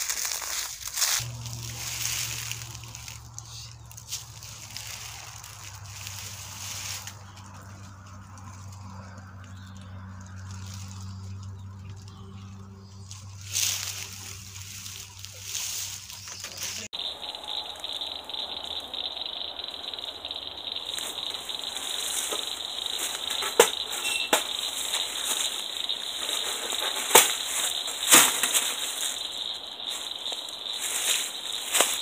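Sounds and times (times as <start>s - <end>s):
insects chirping shrilly: 0.0s - 9.2s, 13.2s - 32.0s
wire cage trap clanking: 20.8s - 29.2s.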